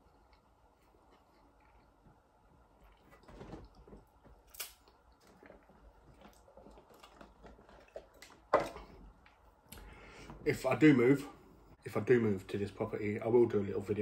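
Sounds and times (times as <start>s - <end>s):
person chewing: 0.0s - 3.3s, 4.2s - 9.9s.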